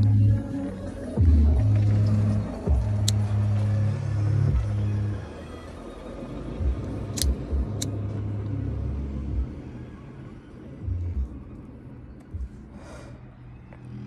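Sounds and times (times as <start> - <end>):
steady low rumble: 0.0 - 14.0
cigarette lighter clicks: 7.1 - 8.0.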